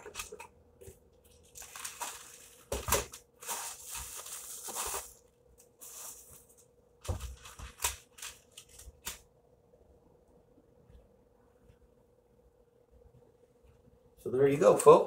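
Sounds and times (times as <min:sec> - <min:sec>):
plastic packaging crinkling: 0:01.3 - 0:09.2.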